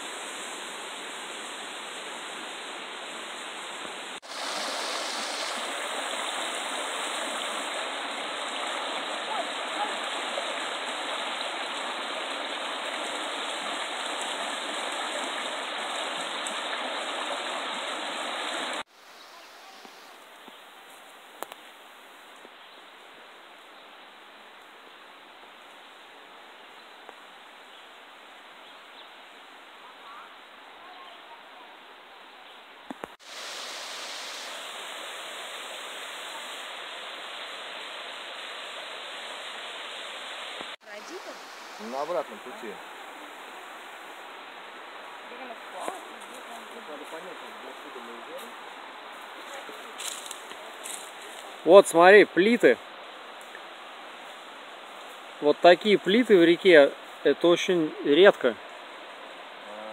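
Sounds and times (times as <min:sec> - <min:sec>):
river rushing over stones: 0:00.0 - 0:18.9, 0:33.1 - 0:59.9
quiet forest background: 0:00.0 - 0:59.9.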